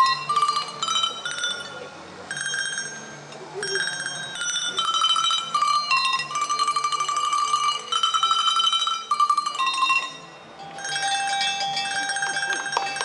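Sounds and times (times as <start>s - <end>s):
handbells ringing a tune: 0.0s - 13.0s.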